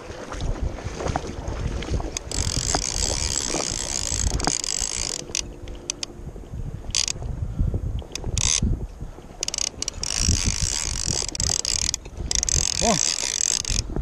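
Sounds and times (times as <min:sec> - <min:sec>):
wind rumble on microphone: 0:00.0 - 0:14.0
fishing reel clicking buzz: 0:02.2 - 0:06.1, 0:06.9 - 0:07.2, 0:08.0 - 0:08.6, 0:09.4 - 0:13.9.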